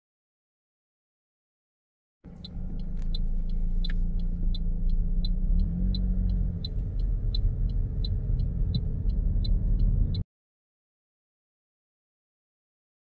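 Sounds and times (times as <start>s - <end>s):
engine and road rumble: 2.2s - 10.2s
turn signal ticking: 2.3s - 10.2s.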